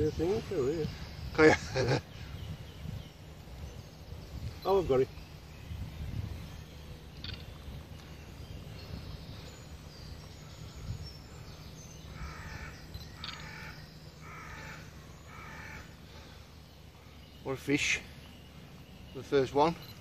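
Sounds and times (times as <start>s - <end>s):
low background rumble: 0.0s - 20.0s
crow cawing: 12.1s - 16.4s.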